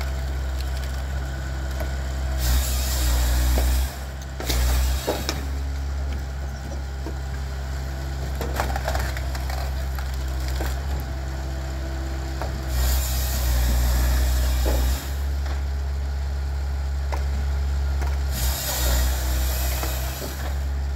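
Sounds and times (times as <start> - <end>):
engine running: 0.0 - 20.9
wood knocking and cracking: 8.2 - 11.1, 17.0 - 18.2
wood pieces clattering on conveyor: 8.2 - 11.1.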